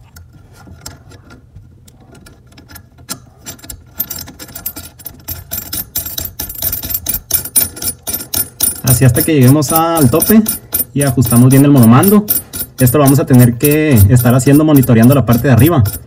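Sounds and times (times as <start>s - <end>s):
metal washer clicking and jingling: 2.1s - 16.0s.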